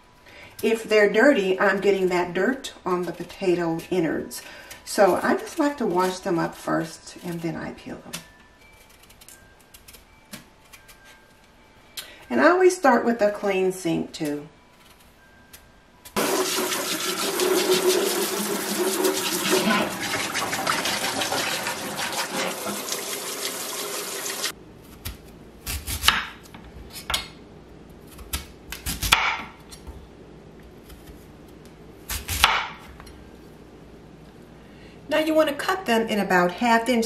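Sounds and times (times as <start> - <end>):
tap water running into steel sink: 16.2 - 24.5.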